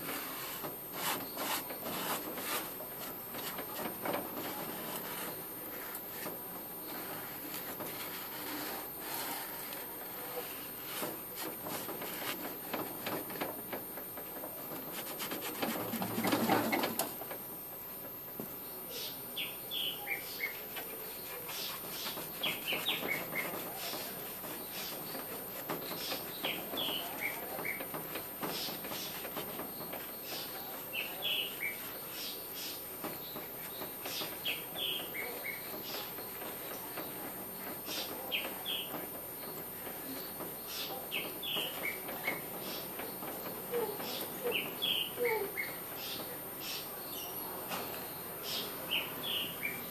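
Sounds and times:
scrubber scrubbing metal plate: 0.0s - 13.0s
cloth wiping metal: 0.0s - 13.1s, 14.6s - 16.7s, 20.6s - 32.9s.

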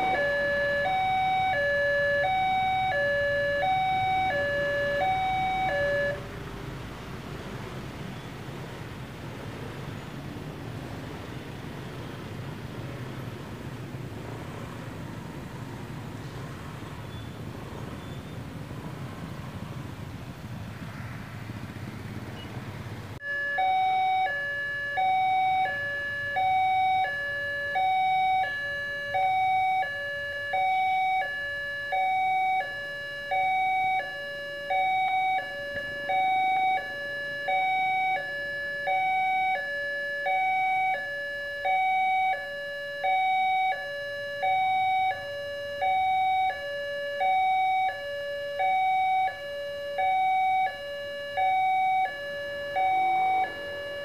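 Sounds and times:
level crossing two-tone alarm: 0.0s - 6.2s, 23.2s - 54.0s
street traffic rumble: 0.0s - 54.0s.

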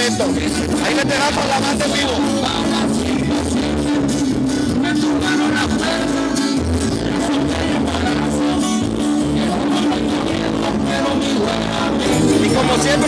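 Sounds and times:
guitar playing: 0.0s - 13.0s
live band music: 0.0s - 13.0s.

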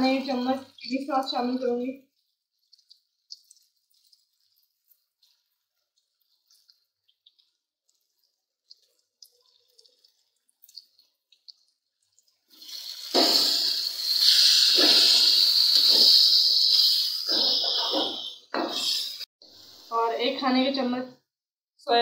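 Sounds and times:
spoon scraping pan: 12.2s - 19.2s
sizzling hiss in hot pan: 12.5s - 20.3s.

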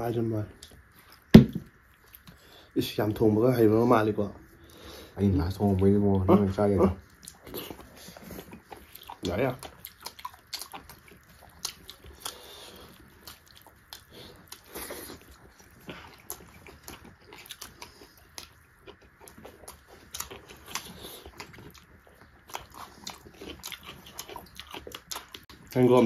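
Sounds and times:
close-up chewing and biting: 5.6s - 25.8s.

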